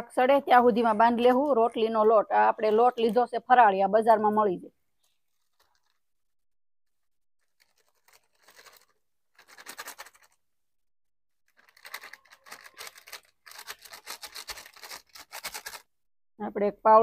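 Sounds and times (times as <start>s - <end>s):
plastic packet rustling: 5.0s - 6.1s, 7.4s - 10.4s, 11.5s - 15.9s.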